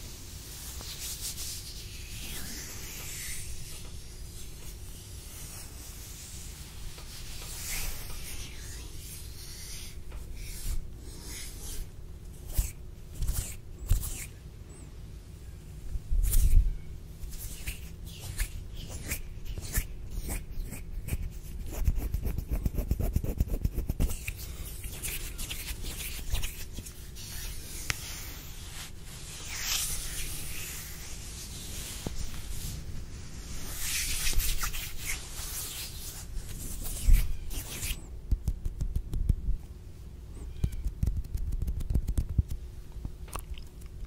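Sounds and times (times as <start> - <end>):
dry swishing hand rubs: 0.0 - 14.4, 15.9 - 39.4
fingers clicking and rubbing: 40.5 - 42.6.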